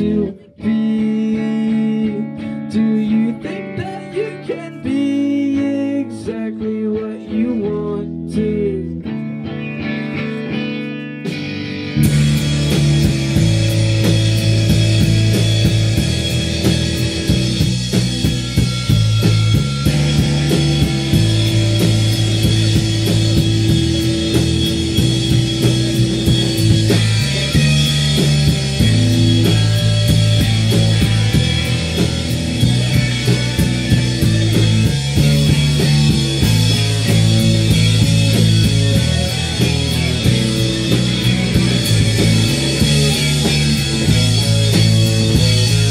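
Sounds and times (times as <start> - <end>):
electric guitar: 0.0 - 45.9
live rock band playing: 0.0 - 45.9
loud drums: 11.2 - 45.9.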